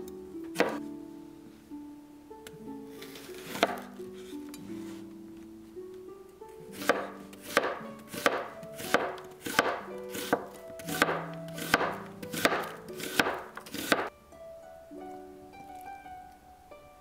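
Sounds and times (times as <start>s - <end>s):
knife chopping onion on board: 0.6s - 0.8s, 3.5s - 3.9s, 6.7s - 14.1s.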